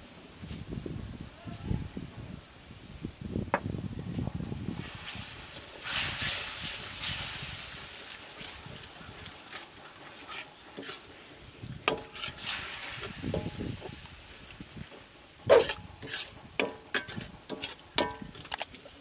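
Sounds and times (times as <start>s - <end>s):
metal ladle scraping a wok: 8.3s - 18.6s.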